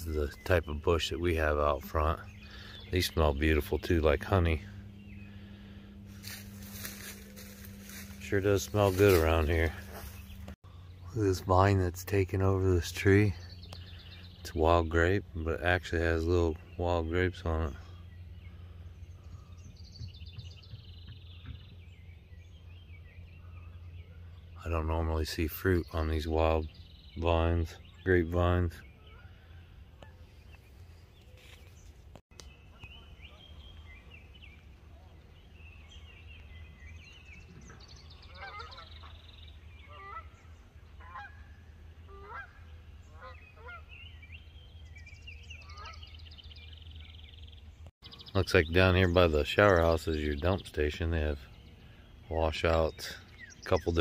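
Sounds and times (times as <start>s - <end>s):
low background rumble: 0.0s - 24.8s
songbird trilling: 32.4s - 54.0s
geese honking in flight: 38.3s - 39.2s, 39.8s - 44.0s, 45.6s - 46.1s.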